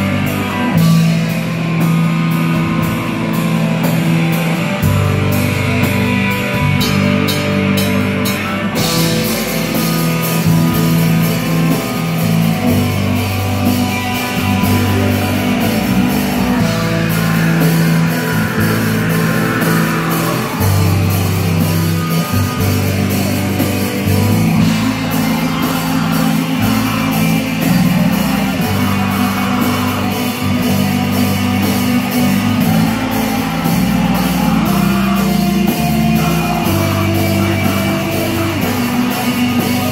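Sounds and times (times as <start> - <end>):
bass guitar: 0.0 - 39.9
distorted electric guitar: 0.0 - 39.9
drum kit beat: 0.0 - 39.9
person singing into a microphone: 24.7 - 39.9.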